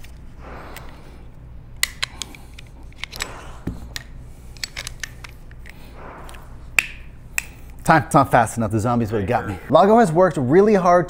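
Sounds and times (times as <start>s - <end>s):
pistol rail clicks and snaps: 1.8s - 5.9s.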